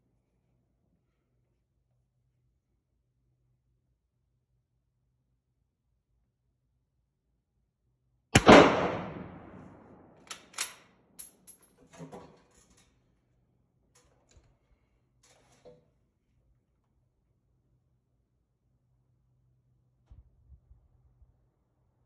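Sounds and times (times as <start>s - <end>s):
rifle shot: 8.4s - 10.6s
rifle bolt clicking: 10.2s - 11.3s.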